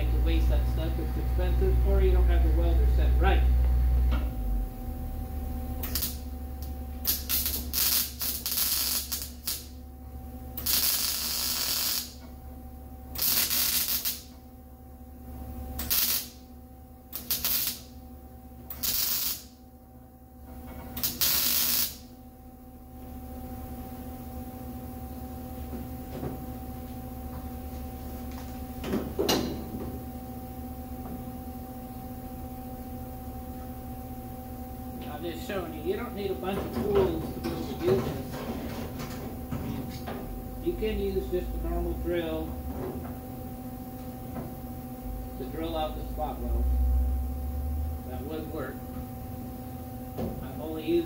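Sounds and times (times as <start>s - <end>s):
steady hum: 0.0s - 51.0s
mig welder tack-welding: 5.8s - 9.8s, 10.5s - 12.3s, 13.1s - 14.5s, 15.7s - 18.0s, 18.6s - 19.6s, 20.7s - 22.1s.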